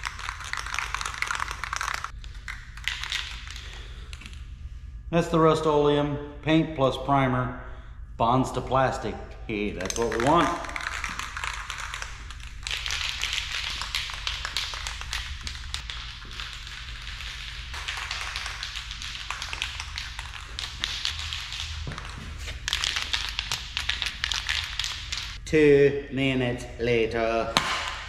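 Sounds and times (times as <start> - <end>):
spray can ball rattling: 0.0 - 4.0, 9.8 - 25.4
low steady hum: 0.0 - 28.0.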